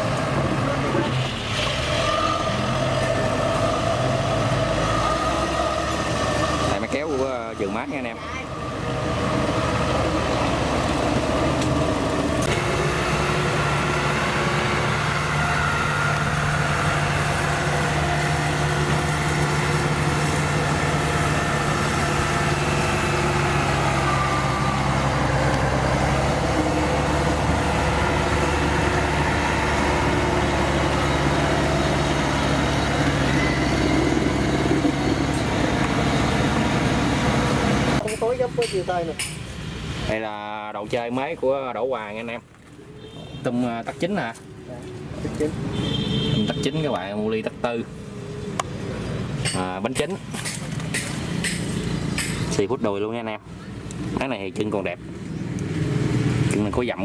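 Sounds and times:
tractor engine running: 0.0s - 39.7s
combine harvester diesel engine: 0.0s - 42.6s.

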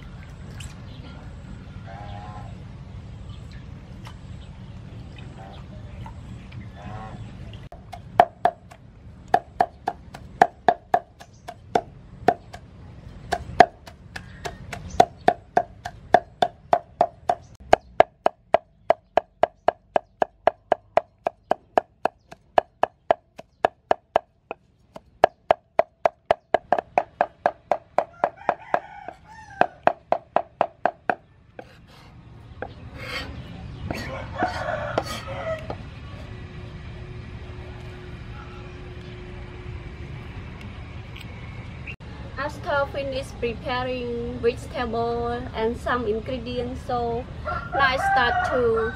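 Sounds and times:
cleaver chopping on wooden board: 7.8s - 12.6s, 13.3s - 24.3s, 25.0s - 31.8s
blade scraping paste on board: 31.6s - 32.2s.

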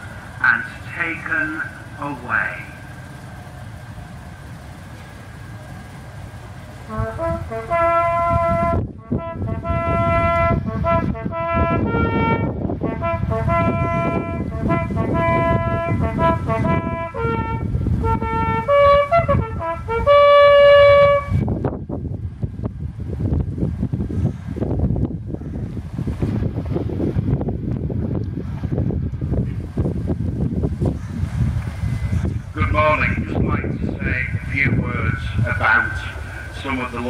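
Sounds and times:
solo bugle call: 6.8s - 21.5s.

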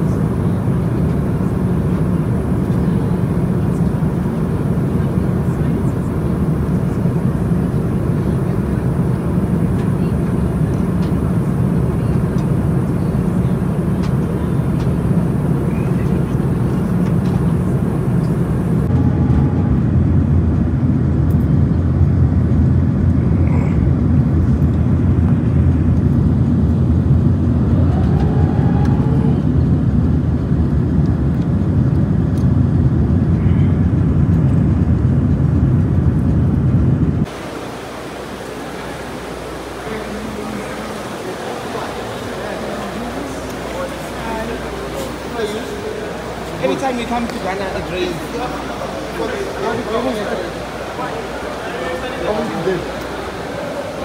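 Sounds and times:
jet engines droning: 0.0s - 54.0s
rushing air: 14.6s - 54.0s.

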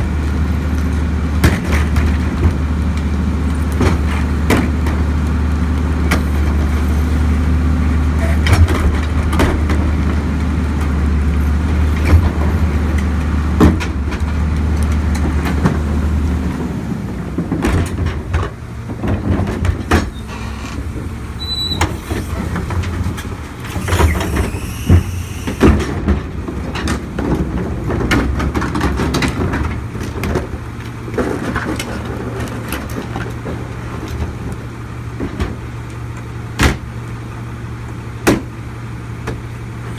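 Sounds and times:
garbage truck diesel engine: 0.0s - 39.9s
plastic carts banging on hopper: 23.8s - 30.6s.

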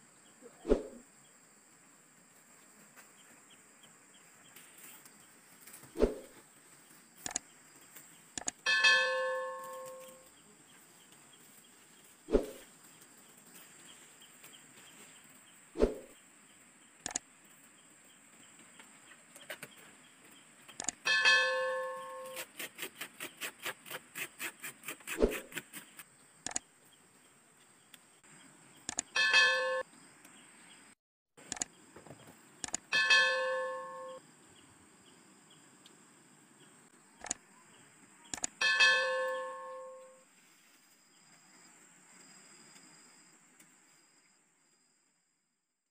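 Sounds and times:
bell-like chime: 8.7s - 10.2s, 21.1s - 22.4s, 29.2s - 29.8s, 33.0s - 34.2s, 38.6s - 40.2s.

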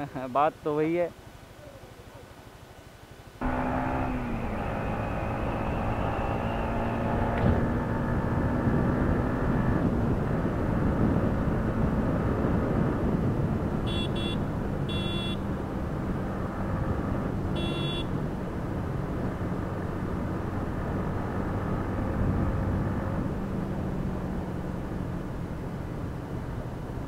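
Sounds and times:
wind rush on microphone: 5.0s - 25.1s
short high-pitched beeps: 13.9s - 15.4s.

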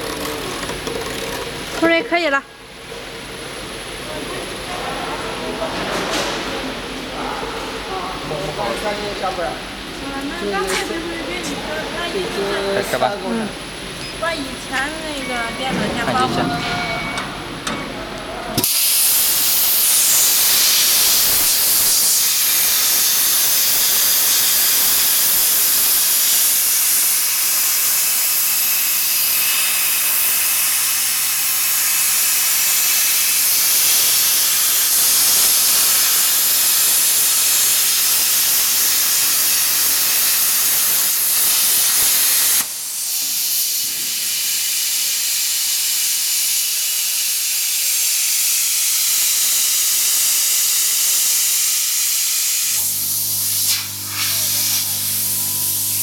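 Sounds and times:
plasma arc hissing: 18.6s - 56.0s.

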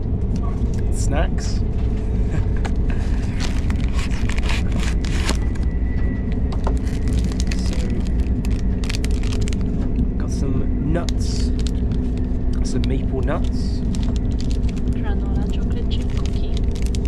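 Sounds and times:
train cabin rumble: 0.0s - 17.0s
paper snack packet crackling: 3.0s - 5.6s, 6.6s - 9.8s, 11.0s - 17.0s.

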